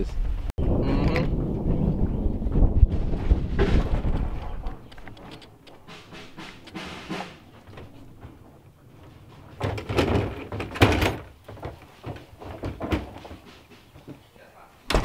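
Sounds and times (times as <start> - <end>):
gear cases knocking: 4.6 - 14.3.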